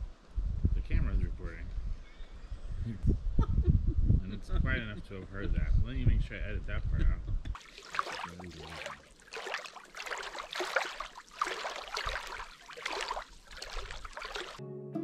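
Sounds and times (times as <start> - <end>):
water lapping and splashing: 7.6 - 14.6.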